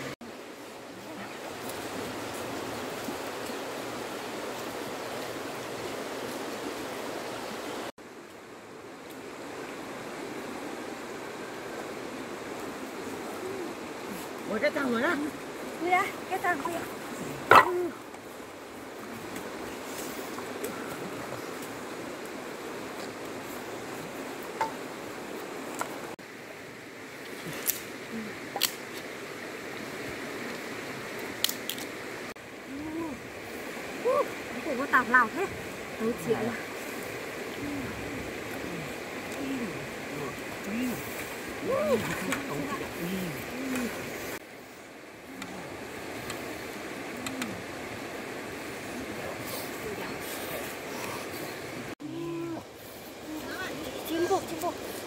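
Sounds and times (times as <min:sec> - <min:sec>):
flowing river water: 0:00.0 - 0:55.0
firewood sticks knocking together: 0:17.5 - 0:17.8.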